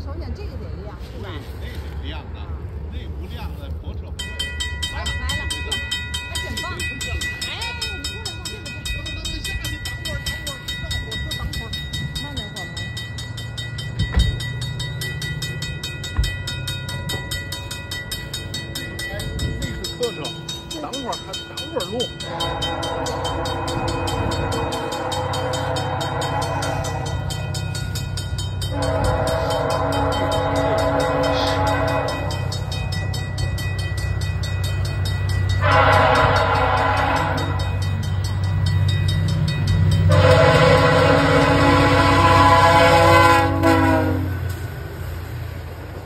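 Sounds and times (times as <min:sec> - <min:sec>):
crossing bell ringing: 0:03.9 - 0:46.0
train air horn blasts: 0:22.2 - 0:27.2, 0:28.7 - 0:32.5, 0:35.6 - 0:37.8, 0:40.0 - 0:44.4.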